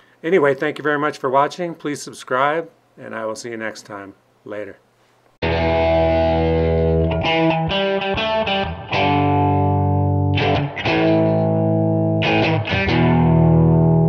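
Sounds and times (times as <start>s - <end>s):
distorted electric guitar chords: 5.4s - 14.0s.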